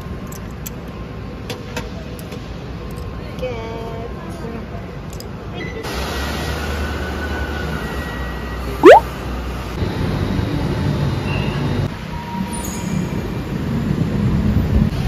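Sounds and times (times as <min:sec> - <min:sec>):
short sound rising in pitch: 0:08.8 - 0:09.0.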